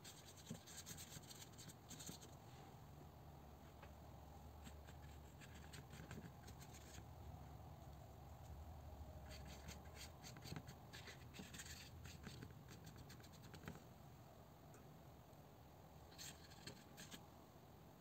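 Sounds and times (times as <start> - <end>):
low steady hum: 0.0 - 18.0
paintbrush strokes on paper: 9.2 - 13.8.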